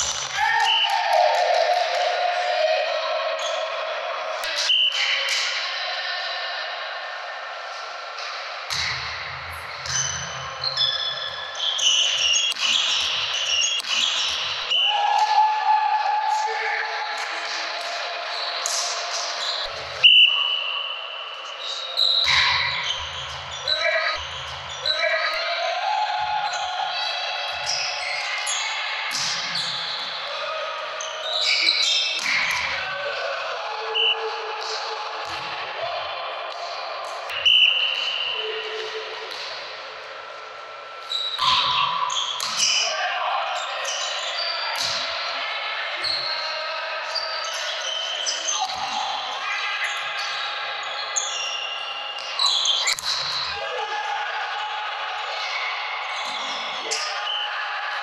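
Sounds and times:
players' voices: 0.0 - 58.0
reverberant hall noise: 0.0 - 58.0
sneakers squeaking on court: 9.8 - 14.6
ball hits: 12.4 - 14.4.

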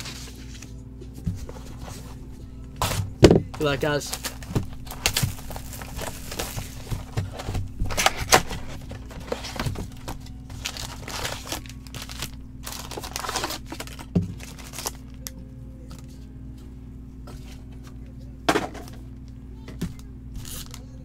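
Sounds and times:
packaging crinkling and tearing: 2.8 - 15.3, 20.4 - 20.9.

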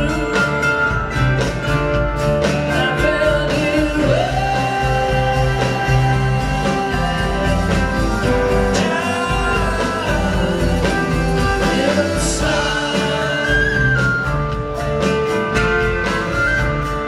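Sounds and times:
person singing lead vocal: 0.0 - 1.0, 2.5 - 14.8
country-rock band playing: 0.0 - 17.0.

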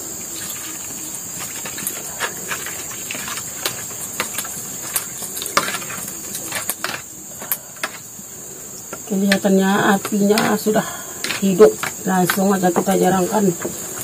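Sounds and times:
water pouring: 0.0 - 7.0
insects chirring: 0.0 - 14.0.

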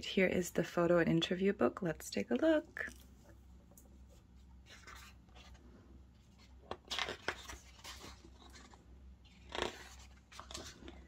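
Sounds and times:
paper and card rustling: 4.0 - 5.6, 6.2 - 11.0.

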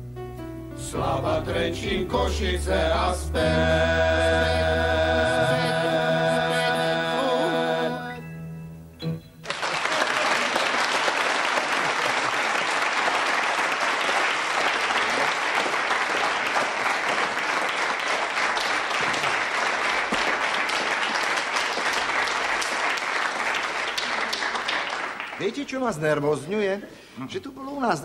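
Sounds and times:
studio audience applauding: 9.4 - 26.1.

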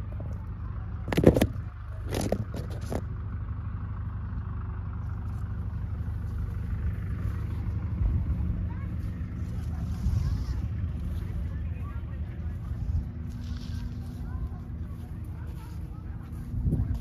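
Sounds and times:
wind rumble on microphone: 6.8 - 17.0.

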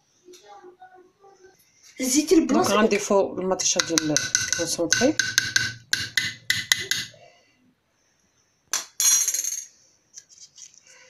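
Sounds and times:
spoon clinking on metal pot: 3.7 - 7.2.

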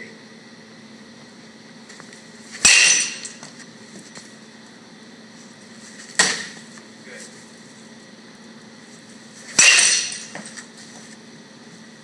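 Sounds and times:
metal bat hitting baseball: 2.6 - 3.5, 6.2 - 6.6, 9.5 - 10.6.

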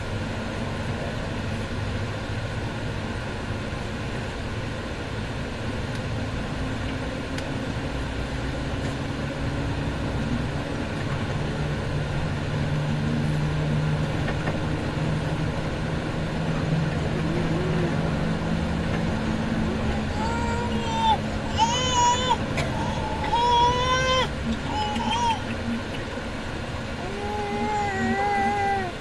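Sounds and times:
vehicle engine and road noise: 0.0 - 29.0.

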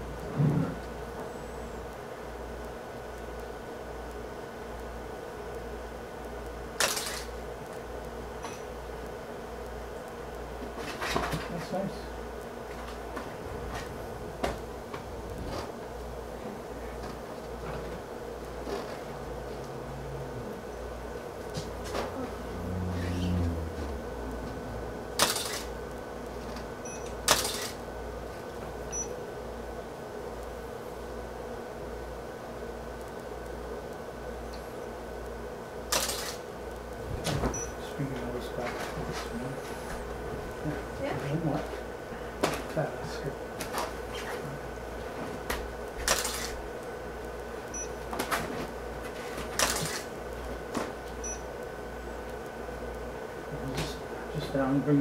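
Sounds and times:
electrical hum: 0.0 - 55.0
camera shutter clack: 6.8 - 7.3, 25.2 - 25.7, 27.3 - 27.8, 35.9 - 36.4, 46.1 - 46.5, 49.6 - 50.1.

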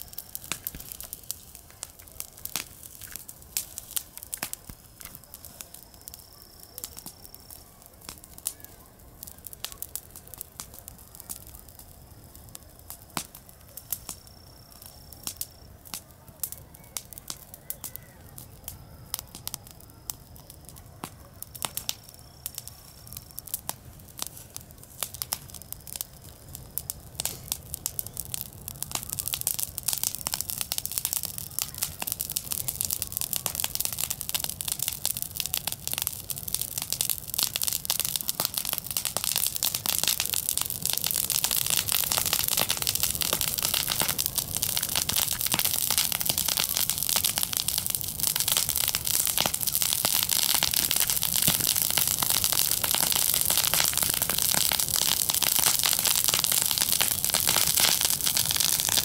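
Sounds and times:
dry grass burning and crackling: 0.0 - 59.0.

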